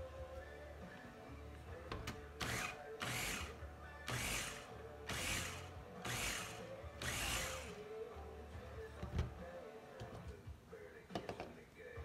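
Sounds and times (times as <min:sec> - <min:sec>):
electric food chopper bursts: 0:04.1 - 0:07.7.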